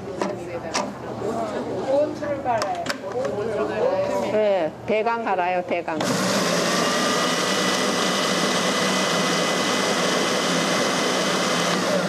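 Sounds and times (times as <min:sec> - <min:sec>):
food processor whirring: 0:06.0 - 0:12.0.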